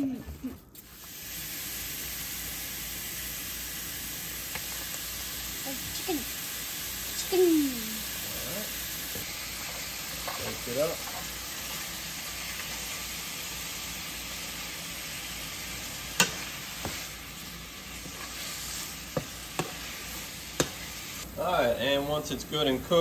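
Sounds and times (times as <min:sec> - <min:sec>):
meat sizzling in a skillet: 0:00.8 - 0:23.0
spoon stirring in a skillet: 0:08.7 - 0:21.2.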